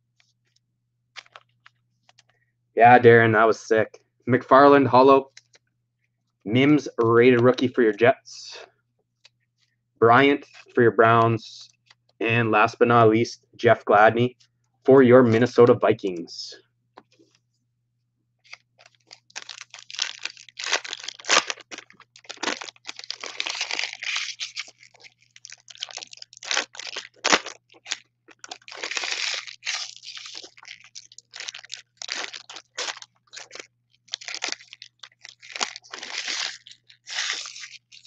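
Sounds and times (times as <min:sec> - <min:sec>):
foil packs crinkling and tearing: 0:18.5 - 0:38.0.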